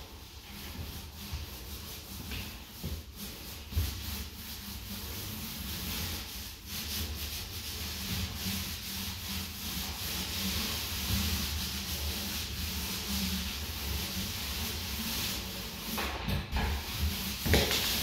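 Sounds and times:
paint roller hissing on wall: 0.0s - 18.0s.

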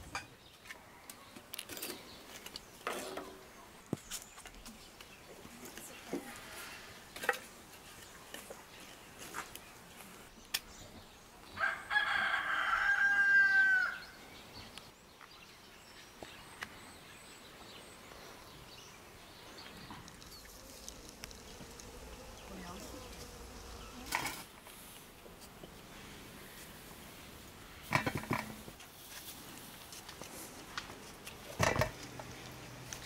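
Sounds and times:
rooster crowing: 11.6s - 14.1s.

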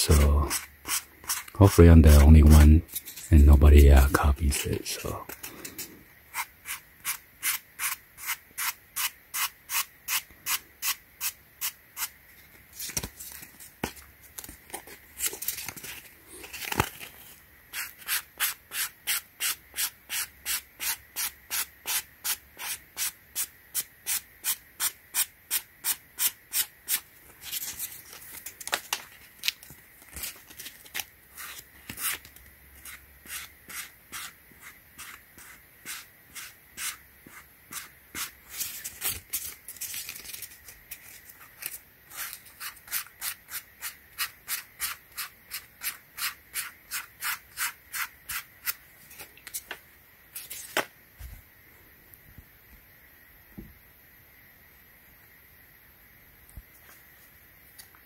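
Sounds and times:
sandpaper rubbing on foam: 0.1s - 2.6s, 32.8s - 38.9s.

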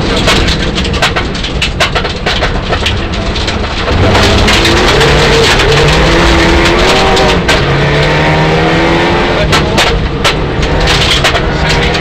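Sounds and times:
gravel clattering on underbody: 0.0s - 12.0s
car engine accelerating: 3.1s - 12.0s.

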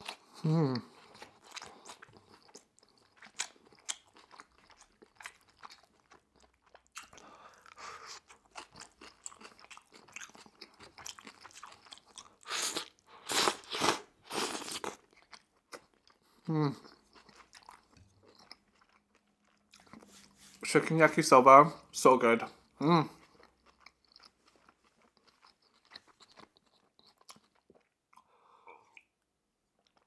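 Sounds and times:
person chewing noodles: 0.0s - 20.6s, 21.8s - 30.0s
slurping: 12.4s - 15.0s.

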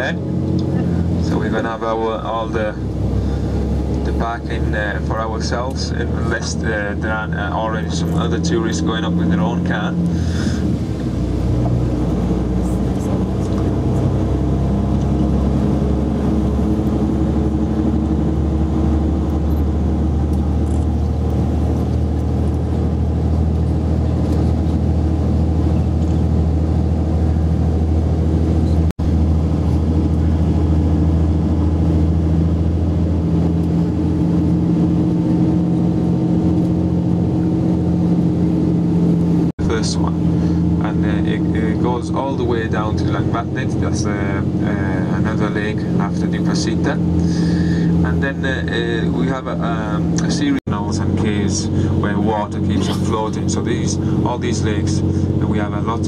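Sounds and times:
bus engine running under load: 0.0s - 56.0s.

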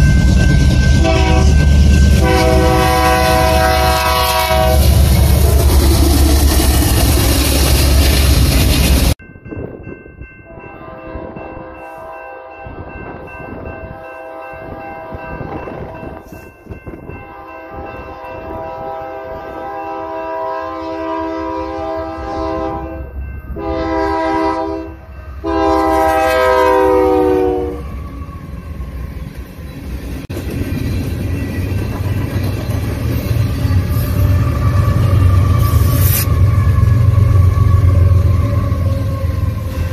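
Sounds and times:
train wheels rumbling and clattering: 0.0s - 10.0s, 27.8s - 39.9s
locomotive air horn blasts: 1.0s - 5.0s, 10.5s - 12.8s, 13.9s - 15.4s, 17.2s - 27.9s.

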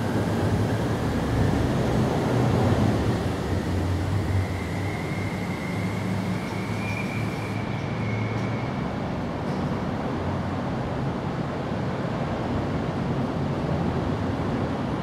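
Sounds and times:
faint high whine: 2.6s - 8.9s.

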